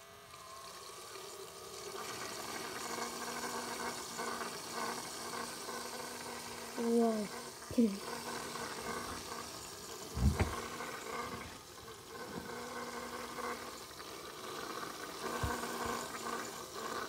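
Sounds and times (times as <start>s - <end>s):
small electric motor humming: 0.0s - 17.0s
low thump: 10.2s - 10.6s.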